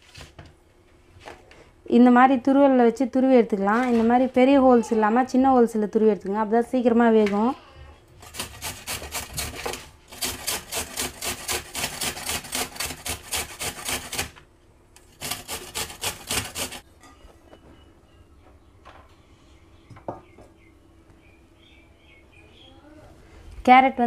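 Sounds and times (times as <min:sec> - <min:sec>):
carrot scraping on metal grater: 0:08.2 - 0:14.4, 0:15.0 - 0:16.8.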